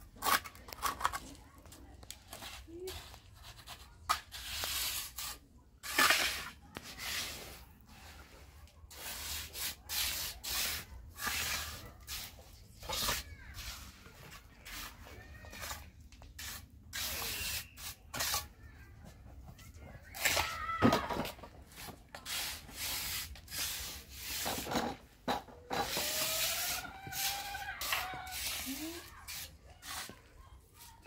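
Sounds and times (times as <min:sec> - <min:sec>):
rough scraping strokes: 0:02.4 - 0:18.5, 0:25.7 - 0:30.2.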